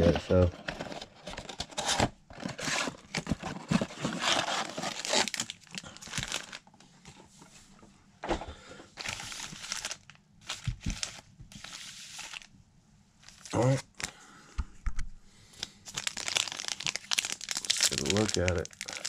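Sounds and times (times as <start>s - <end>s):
foil packs crinkling: 0.3s - 6.7s, 9.0s - 12.5s, 15.8s - 19.0s
cardboard box tearing: 1.4s - 6.5s.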